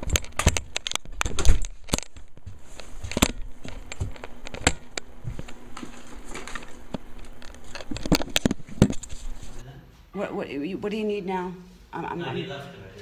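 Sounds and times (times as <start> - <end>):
recording device handling clicks: 3.1 - 9.2.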